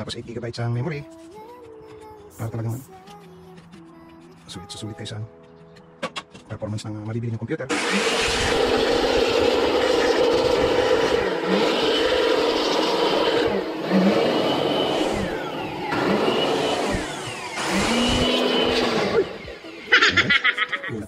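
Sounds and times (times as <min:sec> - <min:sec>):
electric air blower running: 0:07.7 - 0:20.5.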